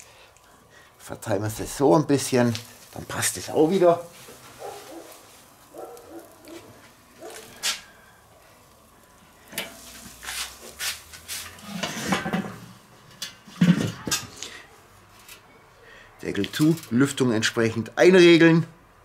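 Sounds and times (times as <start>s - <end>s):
metal grill lid clattering: 9.5s - 10.3s, 11.4s - 14.4s.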